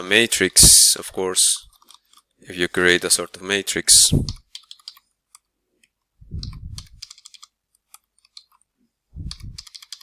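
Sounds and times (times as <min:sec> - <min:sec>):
keyboard typing clicks: 0:04.2 - 0:05.4, 0:06.4 - 0:08.6, 0:09.2 - 0:10.0.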